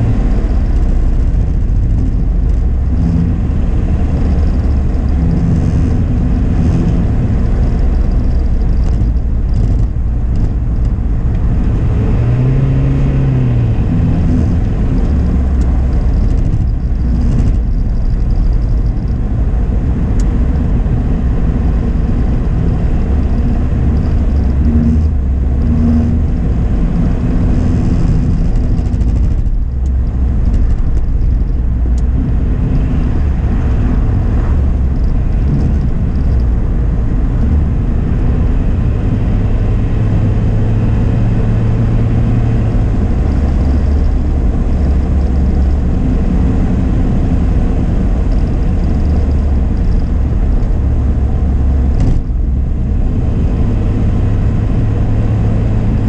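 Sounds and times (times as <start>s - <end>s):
car engine hum: 0.0s - 56.0s
tyre and road noise: 0.0s - 56.0s.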